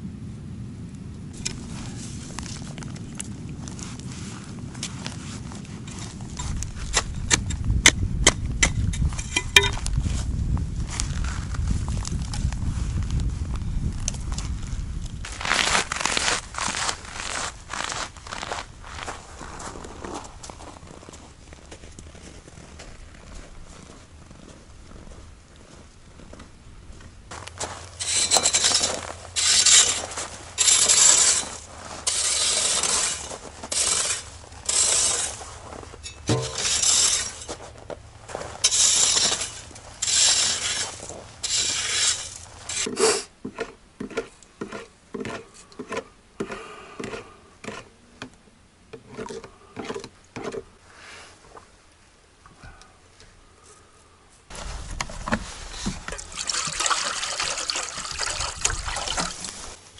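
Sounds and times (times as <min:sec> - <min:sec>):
tool scraping frozen ground: 0:01.4 - 0:11.8, 0:15.2 - 0:20.6, 0:27.3 - 0:47.9, 0:54.5 - 0:59.8
water pouring into metal pot: 0:56.1 - 0:59.4.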